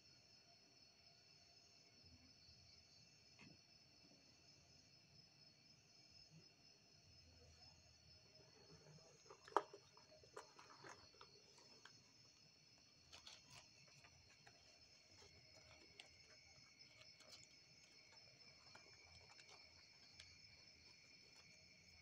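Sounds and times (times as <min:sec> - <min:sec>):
night insects chirring: 0:00.0 - 0:22.0.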